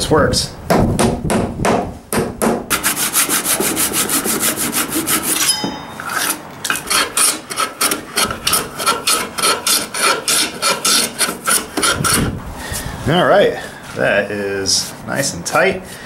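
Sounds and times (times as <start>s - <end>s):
sanding block rubbing wood: 2.7s - 5.4s, 6.2s - 12.3s.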